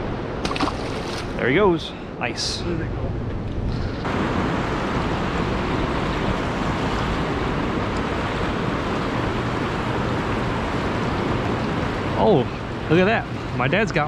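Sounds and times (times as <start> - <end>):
wind buffeting microphone: 0.0 - 14.0
fast-flowing river current: 4.1 - 14.0.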